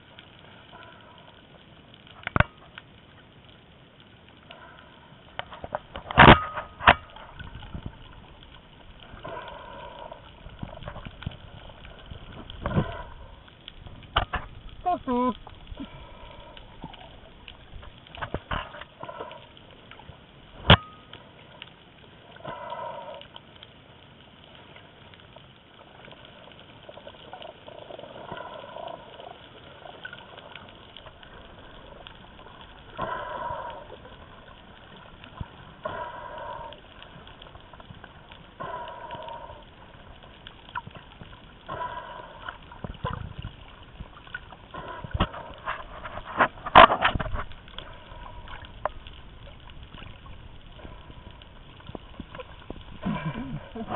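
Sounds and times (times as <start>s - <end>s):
muffled underwater water sloshing: 0.0s - 53.9s
breaths through a snorkel: 9.1s - 11.0s, 32.9s - 34.6s, 35.4s - 37.6s, 38.5s - 40.1s, 41.6s - 43.4s.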